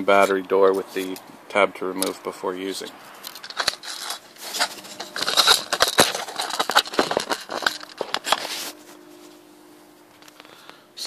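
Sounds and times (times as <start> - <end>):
plastic clicks and crackles: 3.2 - 8.5.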